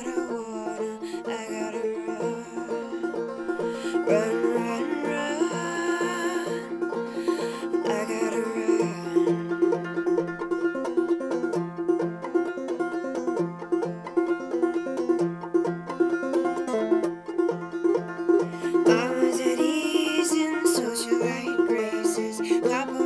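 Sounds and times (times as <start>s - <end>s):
person singing: 0.0s - 11.1s, 18.3s - 23.0s
banjo playing: 0.0s - 23.0s.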